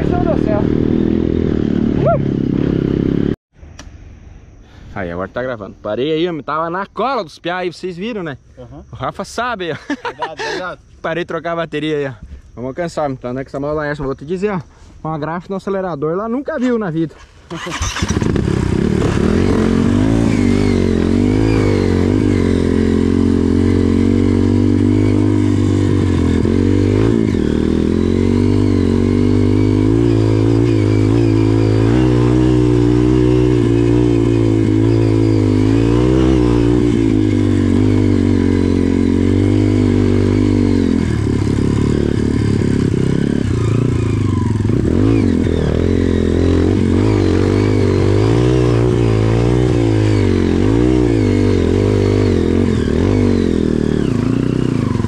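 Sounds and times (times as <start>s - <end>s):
motorcycle engine revving: 0.0s - 3.4s, 16.6s - 55.0s.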